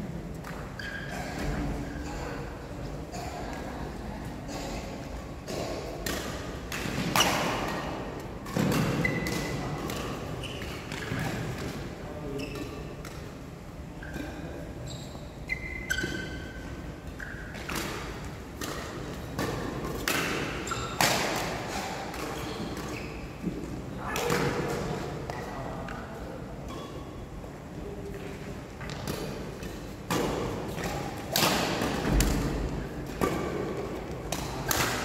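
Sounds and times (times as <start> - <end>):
shoe squeaks: 0.8 - 2.3, 9.0 - 9.3, 10.4 - 10.9, 12.3 - 12.7, 14.8 - 16.6, 20.6 - 21.0, 22.4 - 23.4
rackets hitting shuttlecock: 5.4 - 11.8, 17.1 - 25.4, 28.8 - 35.0.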